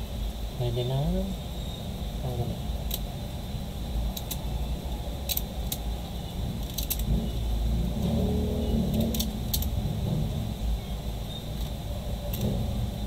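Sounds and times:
low rumble: 5.9 - 13.0.

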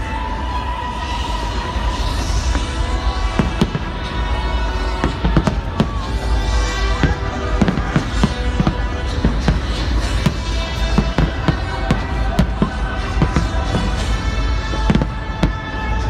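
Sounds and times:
music playing: 0.0 - 16.0.

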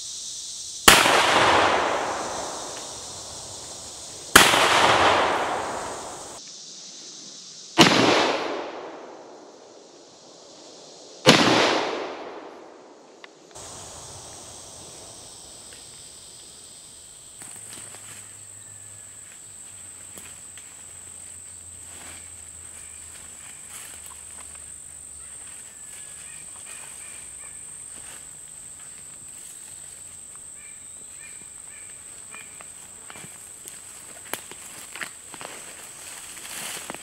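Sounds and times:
high-pitched insect trill: 0.0 - 7.8, 9.2 - 11.3, 13.5 - 37.0.

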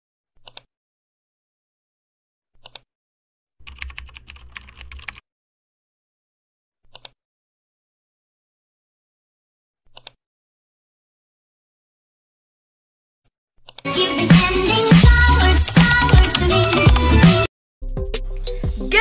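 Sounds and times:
computer mouse clicks: 0.4 - 0.7, 2.6 - 2.9, 6.9 - 7.2, 9.9 - 10.2, 13.6 - 13.9
keyboard typing: 3.6 - 5.2, 15.0 - 17.5.

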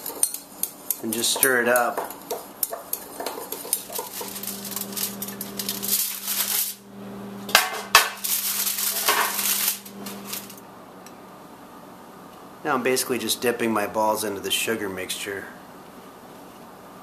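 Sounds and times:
steady low hum: 0.2 - 14.4
aluminium foil crinkling: 3.2 - 6.8, 8.2 - 10.6.

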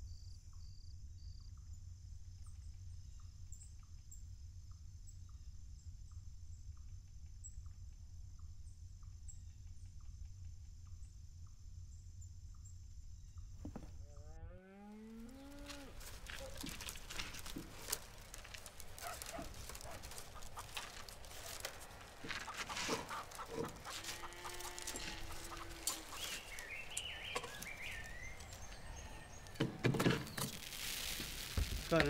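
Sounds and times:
farmyard animal calls: 15.0 - 30.7
chicken clucking: 19.0 - 28.5.

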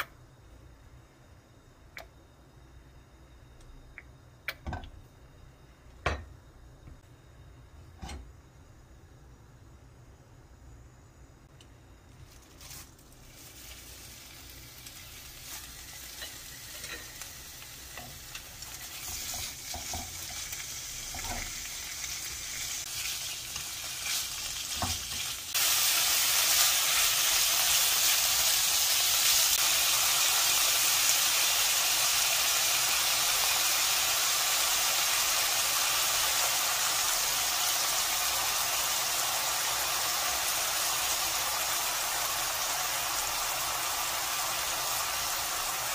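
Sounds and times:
meat sizzling in a wok: 12.2 - 45.9.

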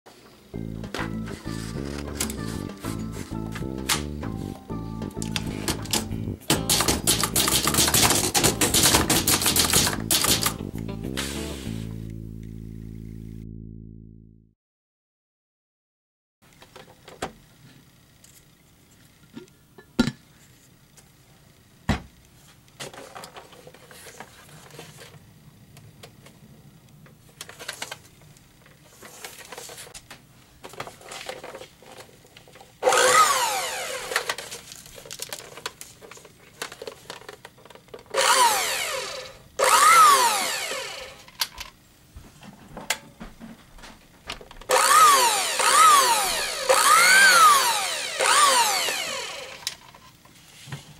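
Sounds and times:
handling clicks and knocks: 5.1 - 10.7
blender motor whining: 32.8 - 34.4, 38.1 - 41.3, 44.7 - 49.8.

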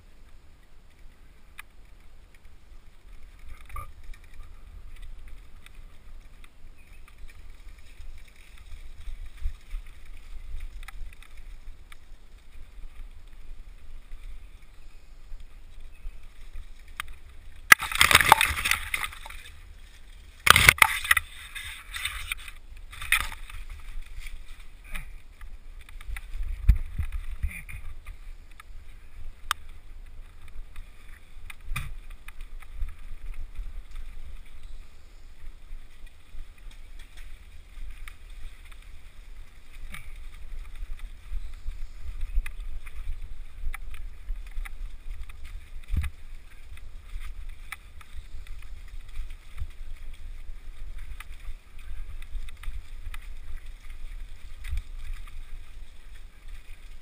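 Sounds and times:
wind and jolting rumble: 2.8 - 34.8.

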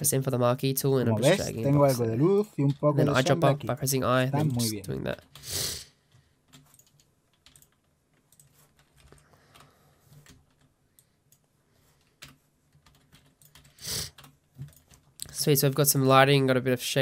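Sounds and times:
computer keyboard typing: 6.1 - 15.9.

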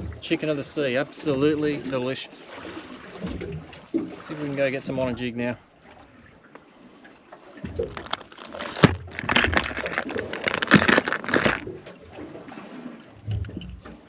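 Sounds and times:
metal lures rattling in plastic tray: 7.8 - 11.7.

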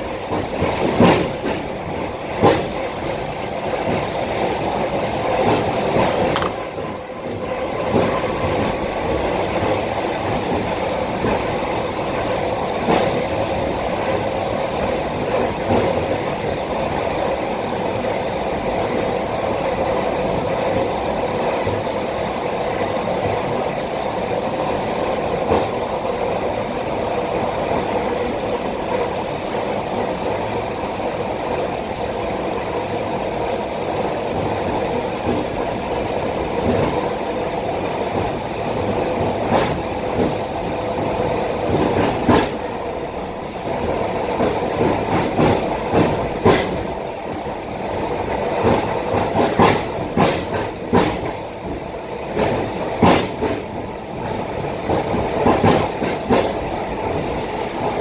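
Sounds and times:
wheels clacking over rail joints: 0.0 - 11.5, 48.6 - 57.9
train running rumble and hum: 0.0 - 58.0.

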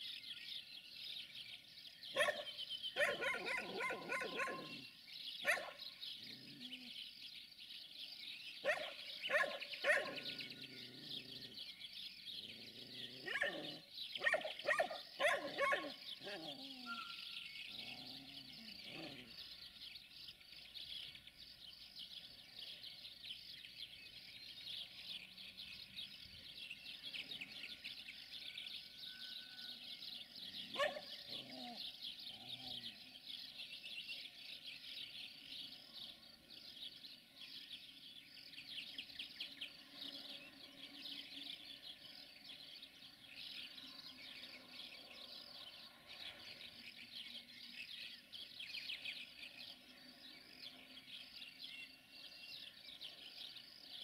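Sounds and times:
birdsong: 0.0 - 54.0
dog barking: 2.2 - 4.8, 5.4 - 5.8, 8.6 - 10.3, 13.2 - 16.4, 30.8 - 31.1.

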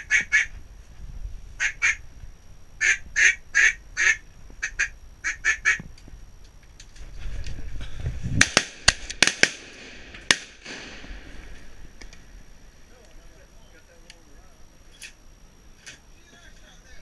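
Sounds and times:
ducks quacking: 0.0 - 0.5, 1.6 - 2.0, 2.8 - 5.8
shotgun blasts: 8.4 - 11.5.

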